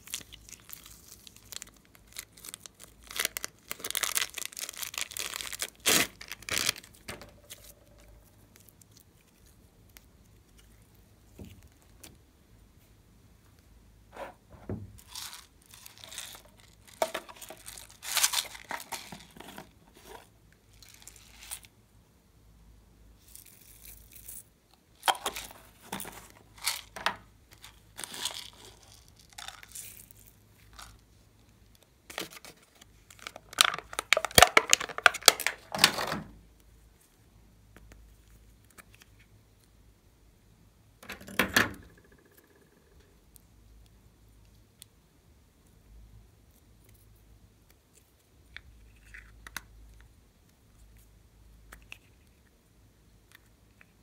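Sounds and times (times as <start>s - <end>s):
plastic containers rustling: 14.1s - 20.3s, 25.1s - 29.7s, 32.1s - 36.4s.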